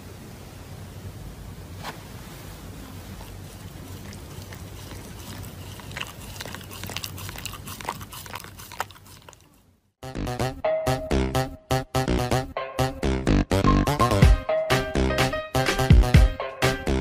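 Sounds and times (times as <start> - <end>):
dog chewing paper tissue: 2.7 - 9.6.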